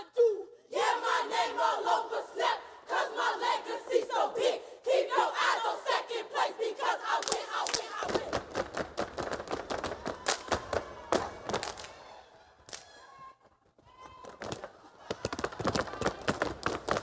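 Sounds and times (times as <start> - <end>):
people clapping: 7.0 - 13.1, 14.0 - 17.0
rhythmic stomps on wooden stage: 8.1 - 11.8.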